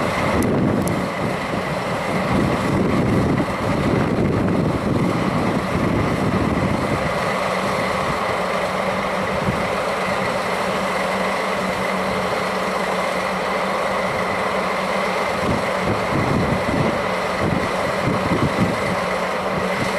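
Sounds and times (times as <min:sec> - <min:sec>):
wind buffeting microphone: 0:00.0 - 0:10.4, 0:15.2 - 0:19.9
diesel locomotive idling: 0:00.0 - 0:19.9.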